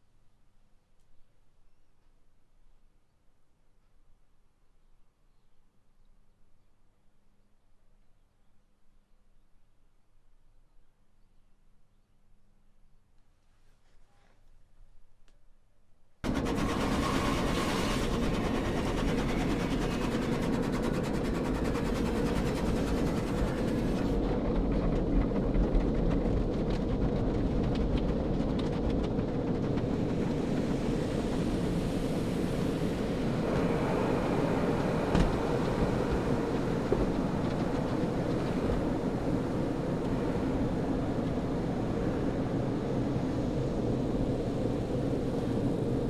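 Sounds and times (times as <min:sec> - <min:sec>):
water spray and rotating brushes: 0:16.3 - 0:24.2.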